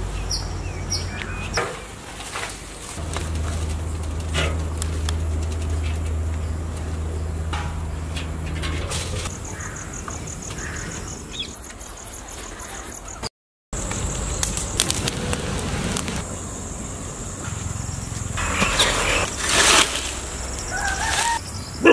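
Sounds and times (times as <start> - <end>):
wood fire crackling: 2.2 - 9.3, 13.8 - 16.7
insect trilling: 13.9 - 21.9.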